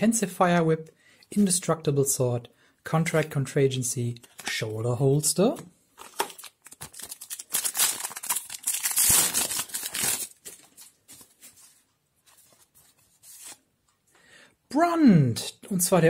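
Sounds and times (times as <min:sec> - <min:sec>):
cards rustling: 0:05.5 - 0:13.7
foil pack crinkling and tearing: 0:06.0 - 0:11.0.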